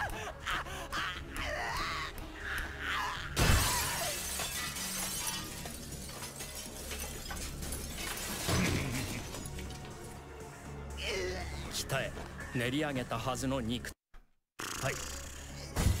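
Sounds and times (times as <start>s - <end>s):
low background music: 0.0s - 14.0s, 14.8s - 16.0s
glass crash: 3.4s - 9.9s.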